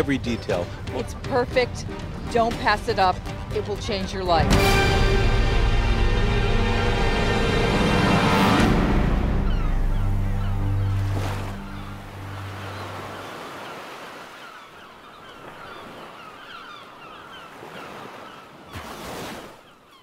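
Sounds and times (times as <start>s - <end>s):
low music notes: 0.0s - 12.8s
ocean surf: 0.0s - 20.0s.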